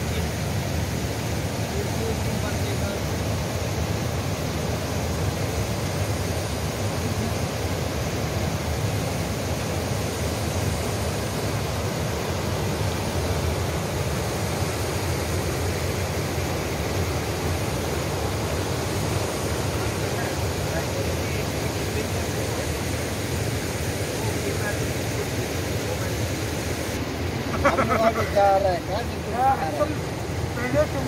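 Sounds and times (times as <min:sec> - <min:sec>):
river rapids rushing over boulders: 0:00.0 - 0:31.0.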